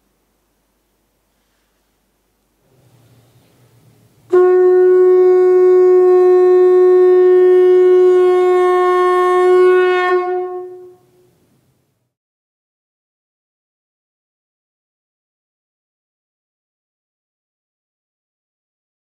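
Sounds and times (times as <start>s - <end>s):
conch shell blown: 4.2s - 11.4s.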